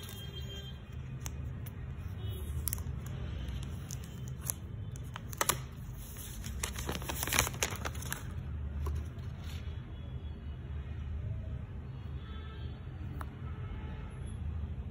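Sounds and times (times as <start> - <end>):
plastic film crinkling: 0.0 - 9.6.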